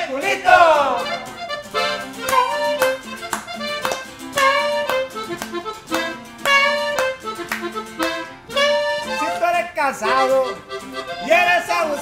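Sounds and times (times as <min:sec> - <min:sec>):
strummed guitar: 0:00.0 - 0:12.0
button accordion: 0:00.5 - 0:12.0
saxophone: 0:00.9 - 0:09.4.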